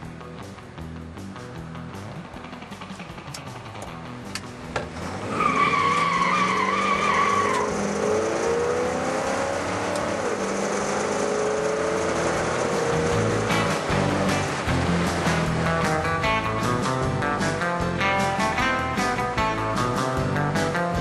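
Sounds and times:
car engine accelerating: 0:00.0 - 0:21.0
tyres squealing: 0:05.0 - 0:08.8.

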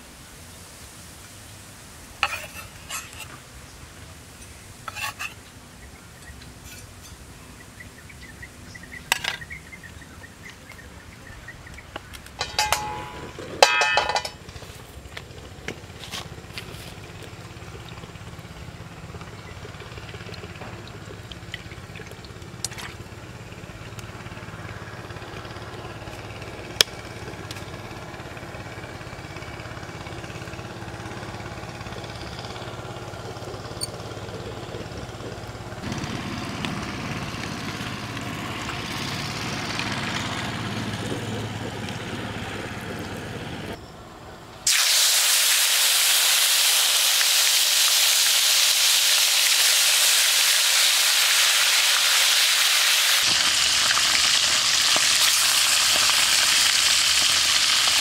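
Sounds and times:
steady low hum: 0:01.8 - 0:44.7
metal cookware clanking: 0:02.2 - 0:03.4, 0:04.4 - 0:05.4, 0:12.4 - 0:14.5.

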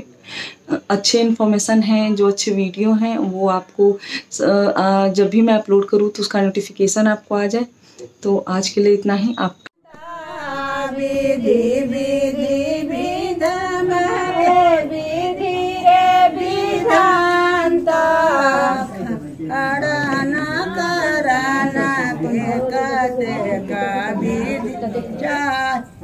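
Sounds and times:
women singing folk song: 0:09.9 - 0:26.0.

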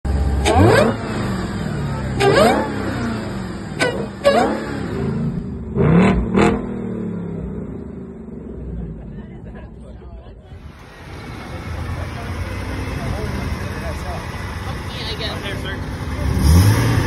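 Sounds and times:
car engine revving: 0:00.1 - 0:09.0, 0:10.6 - 0:17.0.

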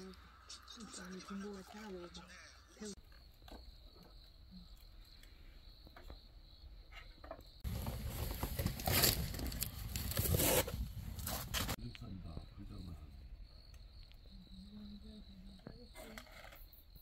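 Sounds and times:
crickets chirring: 0:00.0 - 0:10.6, 0:11.8 - 0:17.0
close-up rustling and crackling: 0:06.9 - 0:11.8.

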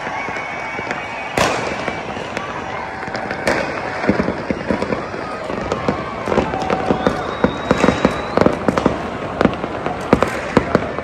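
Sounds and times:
fireworks crackling: 0:00.0 - 0:11.0
sharp firecracker bangs: 0:00.0 - 0:11.0
thin high whistle: 0:07.0 - 0:08.6.

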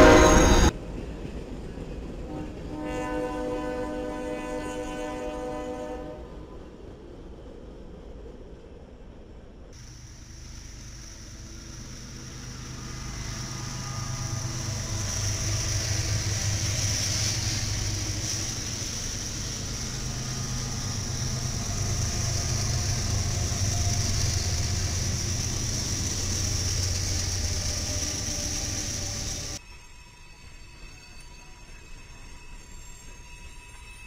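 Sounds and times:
locomotive engine drone: 0:00.0 - 0:08.0, 0:09.7 - 0:29.6
high hiss: 0:09.8 - 0:34.0.

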